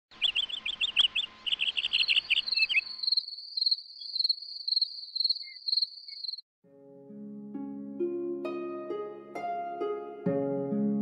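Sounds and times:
crickets chirping: 0:00.2 - 0:06.4
high pulsing cricket trill: 0:00.4 - 0:06.4.

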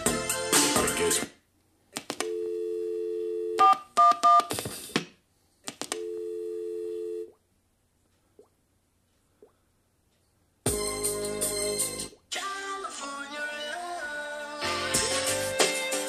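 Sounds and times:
music: 0:00.0 - 0:01.3, 0:10.6 - 0:16.0.

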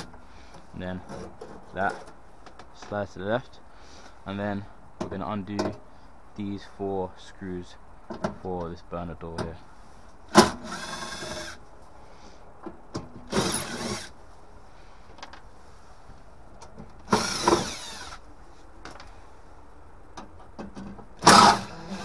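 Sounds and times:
cordless drill motor whining: 0:13.3 - 0:14.1, 0:17.1 - 0:18.2, 0:21.2 - 0:22.0.

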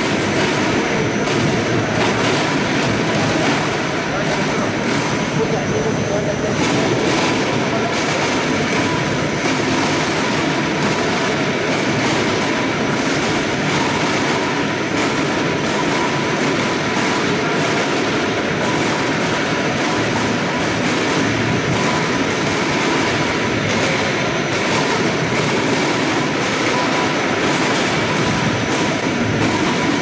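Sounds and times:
faint machine hum: 0:00.0 - 0:30.0
machinery clattering: 0:00.0 - 0:30.0.

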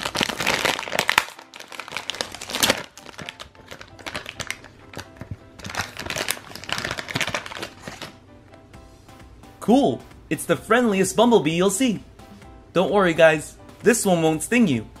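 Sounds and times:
plastic packet crinkling: 0:00.0 - 0:08.2.

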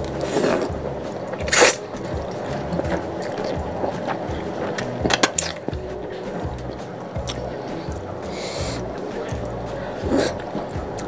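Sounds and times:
person slurping noodles: 0:00.1 - 0:00.8, 0:01.4 - 0:01.9, 0:07.7 - 0:08.9, 0:09.9 - 0:10.6.

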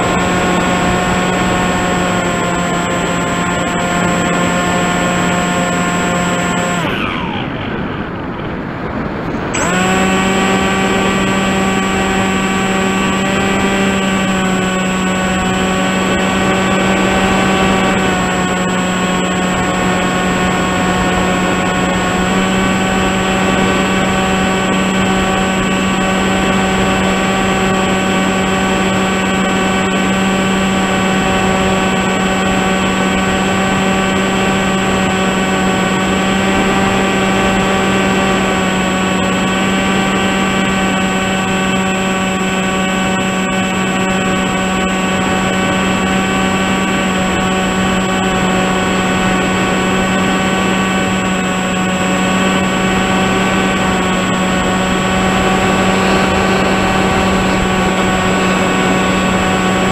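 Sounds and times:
electric motor and propeller whine: 0:00.0 - 0:59.9
rushing air: 0:40.7 - 0:59.9.

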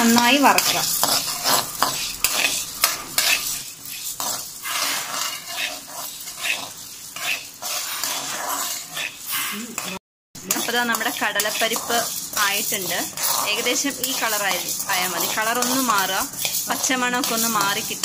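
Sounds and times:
metal spoon scraping pan: 0:00.0 - 0:18.0
dry lentils rattling: 0:10.5 - 0:18.0.

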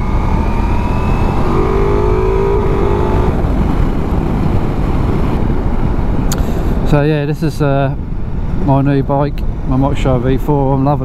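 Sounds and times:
motorcycle engine under way: 0:00.0 - 0:05.2
wind and road rush: 0:00.0 - 0:11.0.

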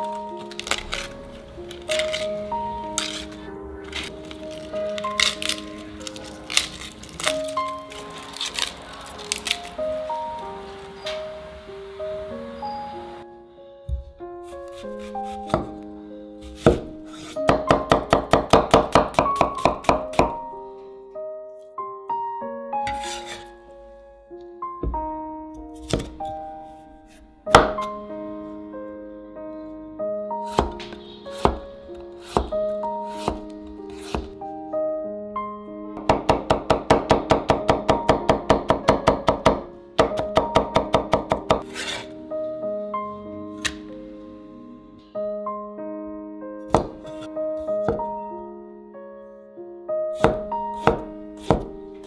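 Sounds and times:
background music: 0:00.0 - 0:52.0
cleaver chopping on wooden board: 0:16.4 - 0:20.4, 0:30.6 - 0:31.6, 0:32.2 - 0:32.5, 0:33.1 - 0:34.4, 0:46.7 - 0:48.0, 0:50.2 - 0:51.7
knife strikes on cutting board: 0:33.1 - 0:34.3, 0:46.7 - 0:48.0, 0:50.2 - 0:51.7.

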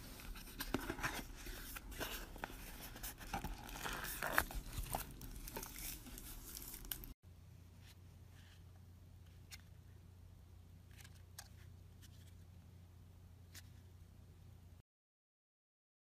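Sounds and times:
cardboard box being opened: 0:00.0 - 0:07.0
plastic wrapper crinkling: 0:00.0 - 0:07.2.

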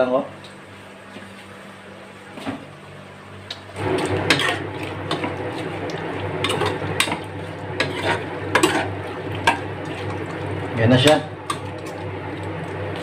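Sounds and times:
wet churning of curry: 0:03.8 - 0:13.0.

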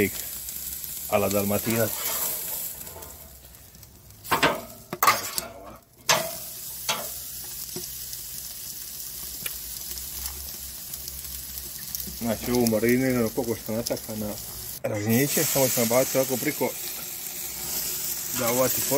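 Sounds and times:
steak sizzling on a grill: 0:00.0 - 0:18.9
metal spatula scraping grate: 0:01.7 - 0:03.3, 0:04.3 - 0:07.2.

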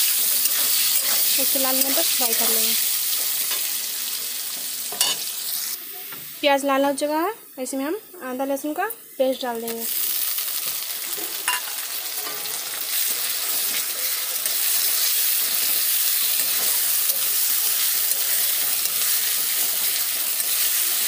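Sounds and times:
spatula stirring: 0:00.0 - 0:02.6, 0:12.2 - 0:21.0
onions sizzling in hot oil: 0:00.0 - 0:21.0.

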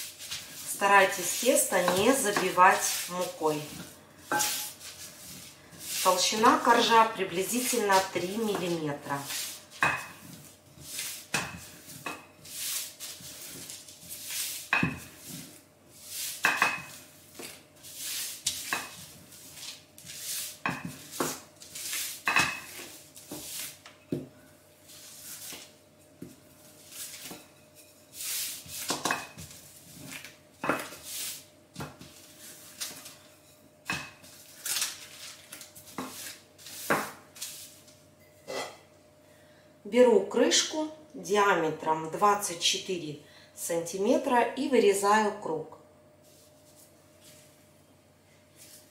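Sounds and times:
baking paper rustling swishes: 0:00.0 - 0:23.9, 0:24.8 - 0:25.8, 0:26.4 - 0:27.5, 0:28.1 - 0:33.6, 0:34.2 - 0:38.0, 0:48.5 - 0:48.9.

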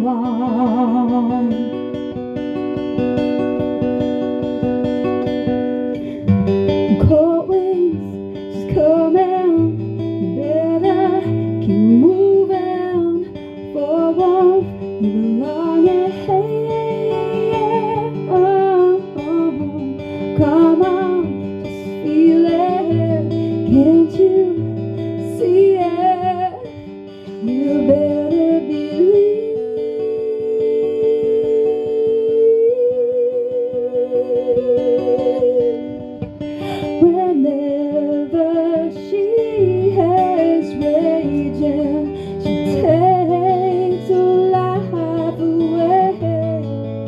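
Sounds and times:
acoustic guitar strummed and picked: 0:00.0 - 0:47.0
woman singing: 0:00.0 - 0:47.0.

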